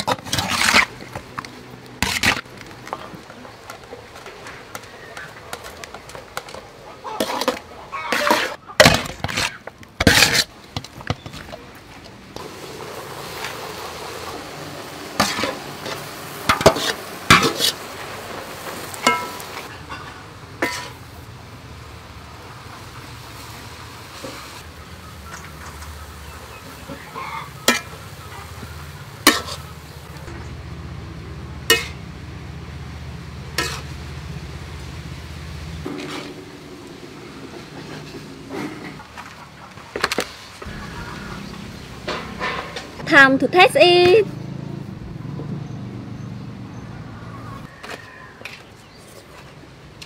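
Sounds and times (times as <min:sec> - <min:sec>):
metal utensil scraping a wok: 0:00.0 - 0:02.5, 0:05.5 - 0:11.4, 0:15.0 - 0:21.1, 0:26.7 - 0:30.1, 0:31.6 - 0:32.0, 0:33.4 - 0:34.2, 0:35.8 - 0:39.1, 0:40.6 - 0:43.6
noodles sizzling in a wok: 0:12.4 - 0:30.3, 0:31.6 - 0:38.3
metal cookware clattering: 0:15.2 - 0:21.0, 0:29.2 - 0:29.7, 0:31.7 - 0:32.0, 0:33.5 - 0:33.9, 0:41.6 - 0:43.2.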